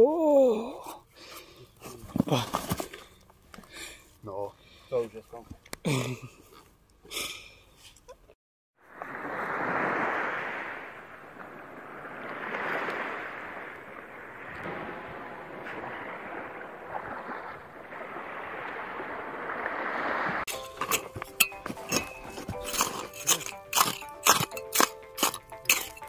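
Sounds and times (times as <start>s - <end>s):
sea surf washing up beach: 8.8s - 21.2s.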